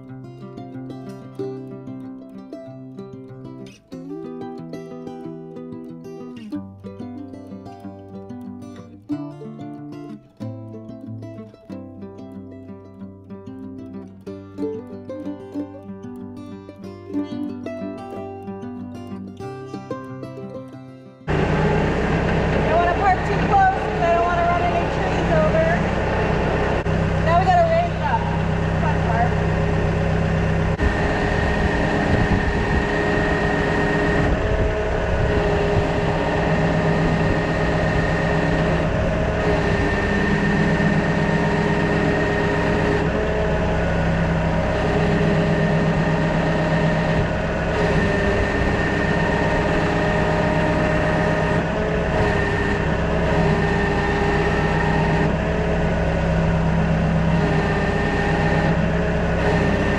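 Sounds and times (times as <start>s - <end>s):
high whining tones: 21.3s - 59.9s
tractor engine running: 21.3s - 59.9s.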